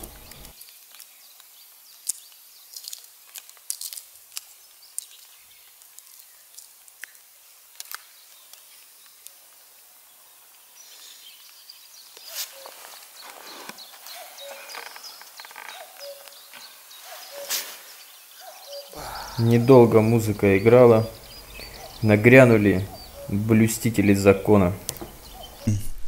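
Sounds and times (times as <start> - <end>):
eggshell crackling: 0.0 - 25.7.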